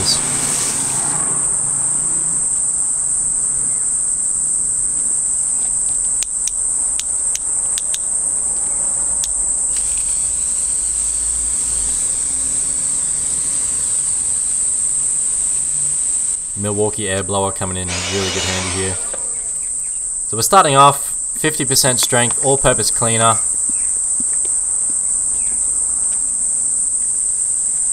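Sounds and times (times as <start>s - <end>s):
garden hose spray hissing: 0.0s - 1.4s, 9.6s - 23.4s
insect chorus: 0.0s - 27.9s
sharp clicks: 5.0s - 8.1s.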